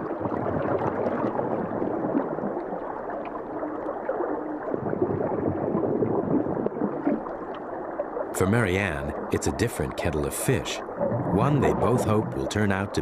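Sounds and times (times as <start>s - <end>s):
water gurgling and bubbling: 0.0s - 13.0s
faint clicks: 7.1s - 7.7s.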